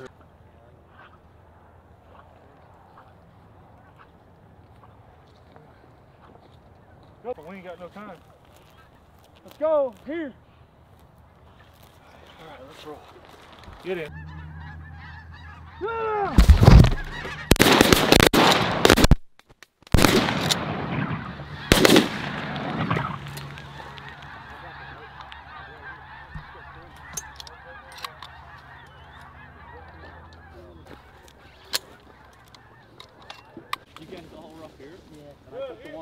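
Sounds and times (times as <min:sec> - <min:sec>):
geese honking and calling: 0:00.8 - 0:09.5, 0:11.4 - 0:18.2, 0:20.9 - 0:36.0
shotgun blasts: 0:16.3 - 0:19.2, 0:19.9 - 0:23.2.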